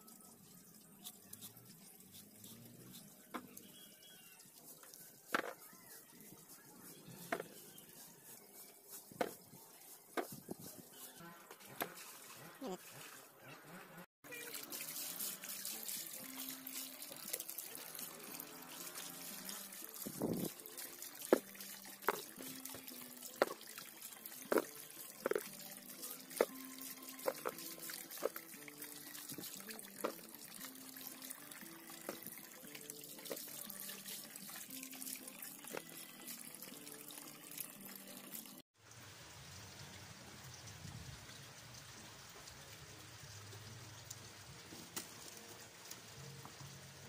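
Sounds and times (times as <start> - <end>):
water splashing in a basin: 14.3 - 46.7
steady watery hiss: 14.5 - 37.7.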